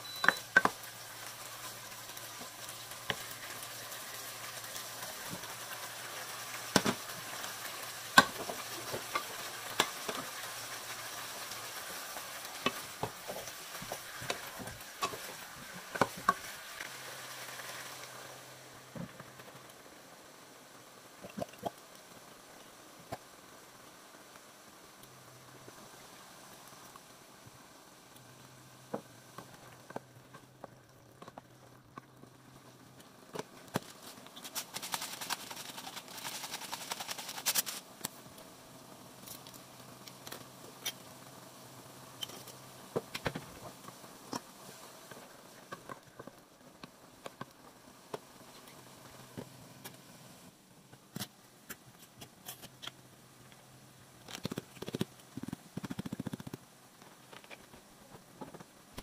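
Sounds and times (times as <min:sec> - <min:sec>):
rustling noise: 0:33.4 - 0:38.0.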